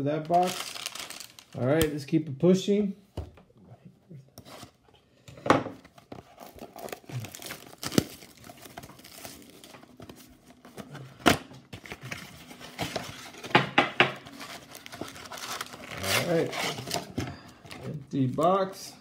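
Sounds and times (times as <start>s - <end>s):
plastic wrapping crinkling: 0.2s - 2.0s, 6.2s - 10.6s, 14.2s - 18.8s
cardboard flap tearing: 6.6s - 9.2s, 14.4s - 17.1s.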